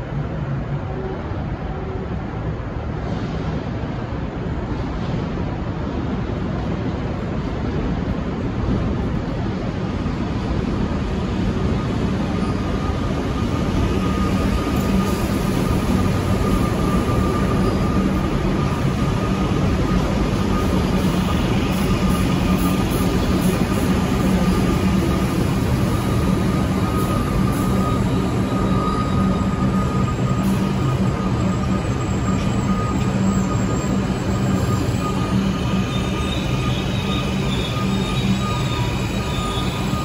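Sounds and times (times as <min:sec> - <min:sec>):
diesel railcars running: 0:00.0 - 0:40.0
electric train moving: 0:01.5 - 0:40.0
thin steady whine: 0:11.1 - 0:40.0.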